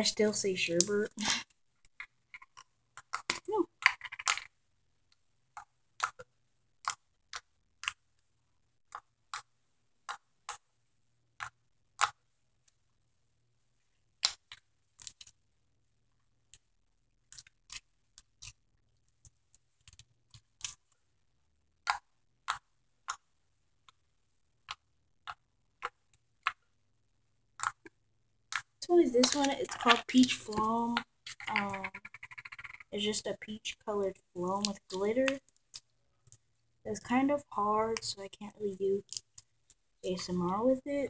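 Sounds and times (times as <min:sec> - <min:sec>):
slime clicking and popping: 0:05.6 - 0:08.0, 0:14.2 - 0:15.4, 0:21.8 - 0:23.2, 0:27.5 - 0:32.9.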